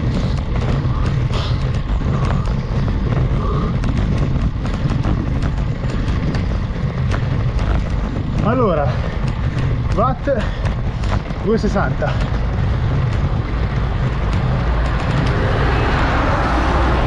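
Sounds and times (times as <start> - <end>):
wind and road rumble: 0.0 - 17.0.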